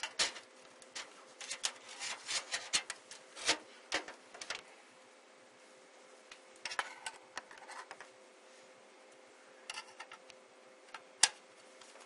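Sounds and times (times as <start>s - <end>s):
metal clicks and scraping: 0.0s - 4.6s.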